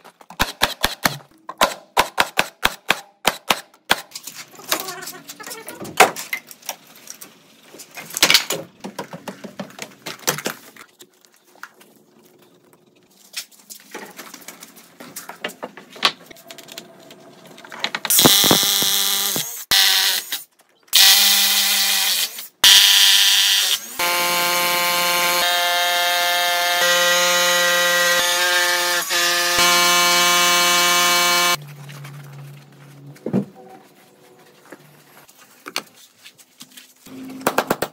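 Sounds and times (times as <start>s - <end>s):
rotary hammer drilling into concrete: 18.1s - 20.4s, 21.0s - 31.6s.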